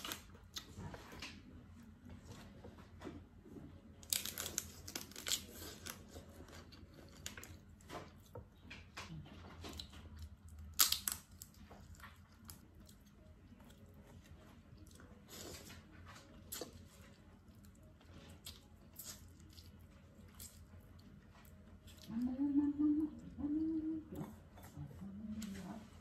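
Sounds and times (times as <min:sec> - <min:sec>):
chewing: 0:04.1 - 0:25.6
crab shell cracking: 0:10.7 - 0:11.6.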